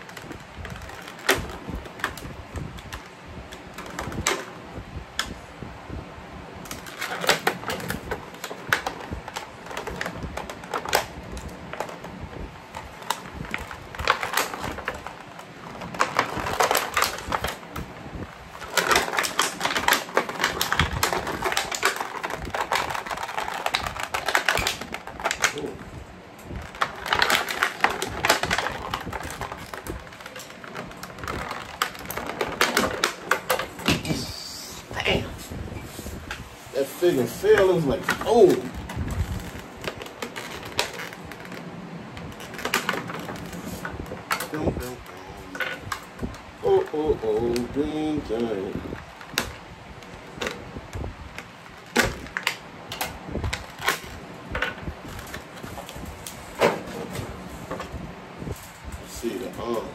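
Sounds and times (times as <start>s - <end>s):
scissors cutting plastic: 0.0s - 4.5s, 6.7s - 35.0s, 36.3s - 41.6s
plastic bag crinkling: 0.0s - 5.4s, 6.6s - 59.9s.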